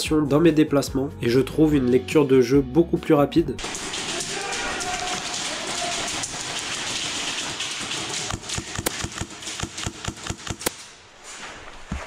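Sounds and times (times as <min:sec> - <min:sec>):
airsoft gun rapid shots: 0:03.6 - 0:11.0
shuffling movement: 0:11.0 - 0:12.0.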